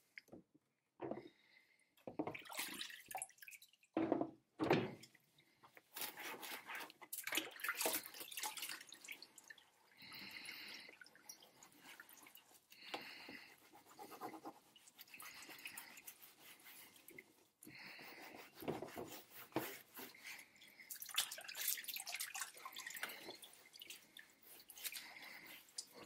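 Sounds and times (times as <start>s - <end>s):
water dripping: 2.1s - 4.0s, 7.1s - 13.5s, 20.2s - 26.0s
wet cloth scrubbing plastic: 5.7s - 26.0s.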